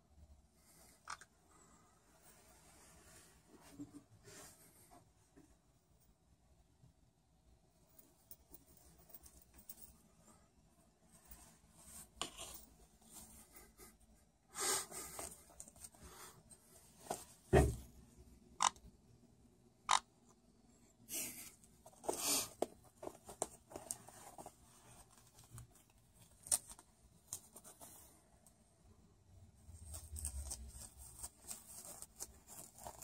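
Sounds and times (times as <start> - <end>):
dull thump: 17.5 - 17.9
parrot claws scraping fabric: 29.7 - 33.0.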